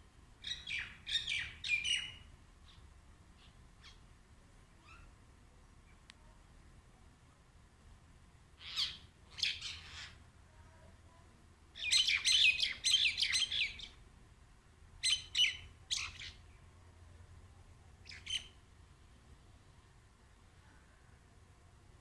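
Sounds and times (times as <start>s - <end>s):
mynas calling: 8.6s - 10.2s.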